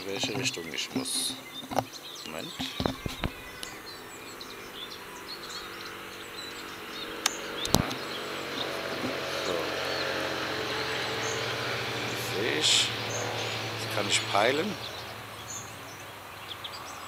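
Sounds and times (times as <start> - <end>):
small birds chirping: 0.0 - 17.0
sharp clicks: 7.2 - 8.0.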